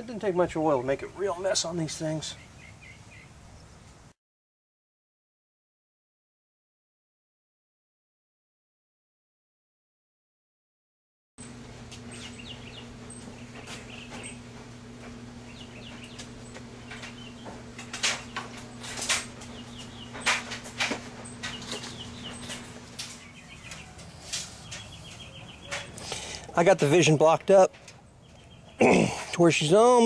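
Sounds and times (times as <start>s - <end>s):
birds chirping: 0.0s - 4.0s, 11.4s - 30.0s
steady low hum: 11.4s - 30.0s.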